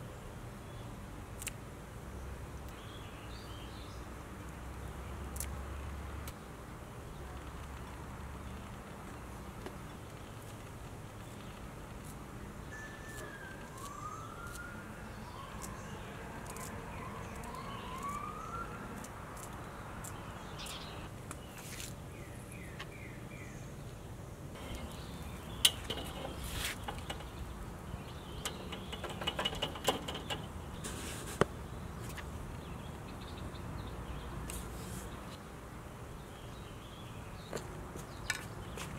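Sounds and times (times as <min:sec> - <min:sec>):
outdoor background noise: 0:00.0 - 0:38.9
birds chirping: 0:04.8 - 0:38.9
scissors snipping: 0:16.4 - 0:16.7, 0:19.0 - 0:20.8.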